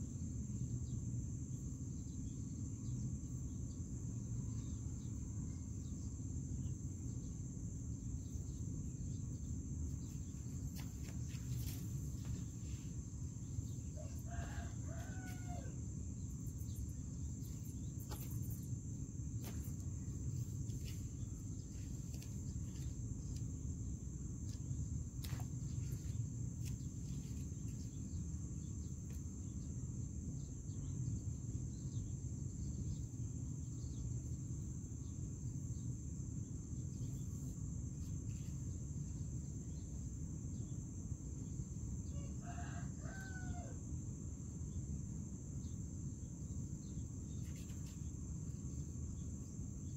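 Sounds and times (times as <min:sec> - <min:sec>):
rooster crowing: 0:13.9 - 0:15.9, 0:42.1 - 0:43.8.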